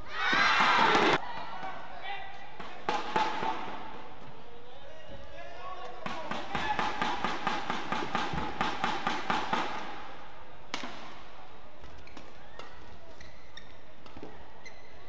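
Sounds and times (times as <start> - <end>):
rackets striking shuttlecock: 2.5 - 4.0
shoes squeaking on court: 11.8 - 15.0.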